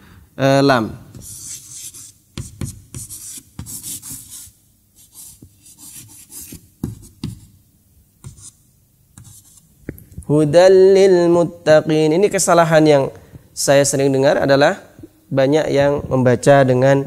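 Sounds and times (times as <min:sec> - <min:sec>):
chalk scratching on blackboard: 0:01.1 - 0:07.6, 0:08.2 - 0:08.6, 0:09.2 - 0:09.7.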